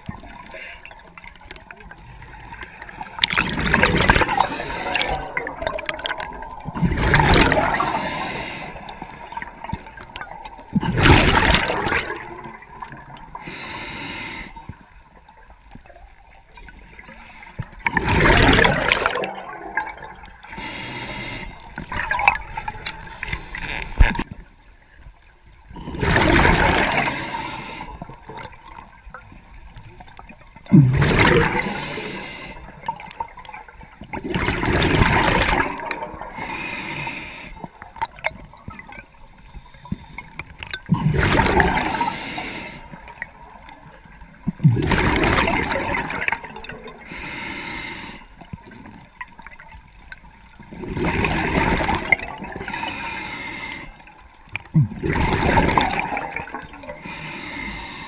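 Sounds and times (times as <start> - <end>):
exhaled bubbles gushing: 1.6 - 8.4, 9.3 - 13.4, 17.8 - 20.6, 21.6 - 24.2, 25.7 - 29.1, 30.0 - 36.6, 40.4 - 47.1, 50.1 - 52.9, 54.6 - 57.0
diver breathing through regulator: 2.8 - 5.6, 7.4 - 9.6, 13.3 - 14.7, 20.4 - 21.9, 22.9 - 24.2, 26.0 - 28.2, 31.2 - 33.0, 36.2 - 37.8, 41.5 - 43.0, 47.0 - 48.4, 52.5 - 54.1, 55.8 - 58.0.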